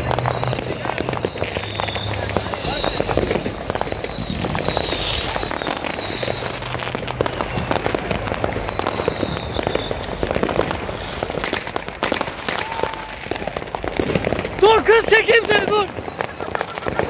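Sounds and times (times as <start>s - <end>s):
firework whistle falling: 0.0s - 17.0s
fireworks crackling and popping: 0.0s - 17.0s
loud firework bangs: 0.0s - 17.0s.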